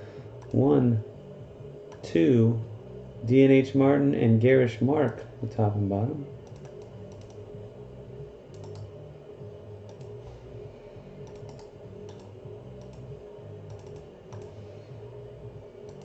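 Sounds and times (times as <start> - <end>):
steady low hum: 0.0 - 16.0
keyboard keystrokes: 6.4 - 7.4, 8.5 - 8.9, 9.9 - 10.2, 11.2 - 13.1, 13.7 - 14.5
mouse clicks: 6.4 - 7.4, 13.7 - 14.5.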